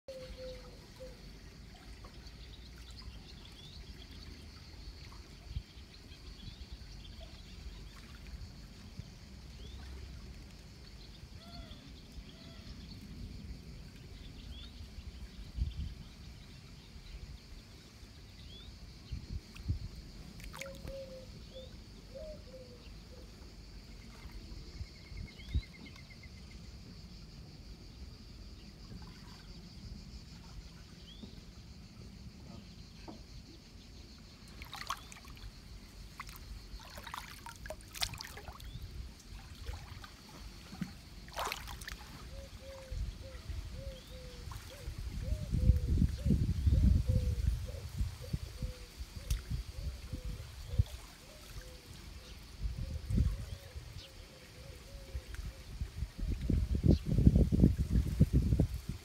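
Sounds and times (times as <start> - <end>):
high insect drone: 17.0 - 59.0.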